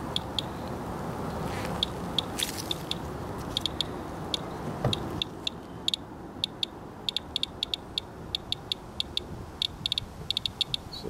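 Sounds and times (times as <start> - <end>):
geiger counter clicking: 0.0 - 0.5, 3.6 - 10.9.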